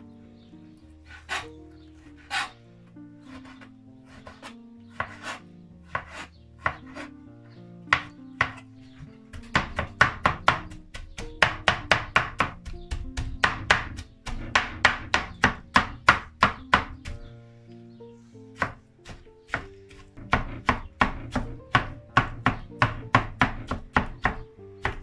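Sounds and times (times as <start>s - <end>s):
knife chopping on cutting board: 5.0s - 7.1s, 8.0s - 17.2s, 18.6s - 25.0s.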